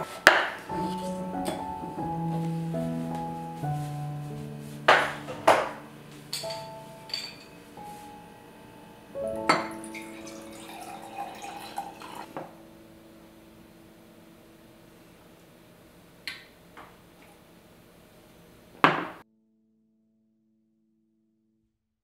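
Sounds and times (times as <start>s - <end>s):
soft piano music: 0.0s - 15.6s
glasses clinking: 6.3s - 7.8s, 9.5s - 12.3s
water poured into a glass: 9.6s - 12.3s.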